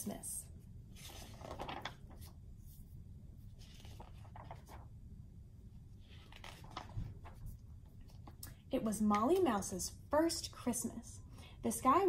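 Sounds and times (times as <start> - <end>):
book pages rustling: 0.9 - 4.9, 6.0 - 8.4.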